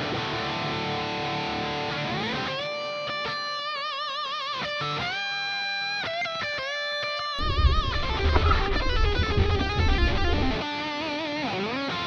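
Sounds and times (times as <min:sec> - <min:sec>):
guitar with bent notes: 0:07.4 - 0:10.8.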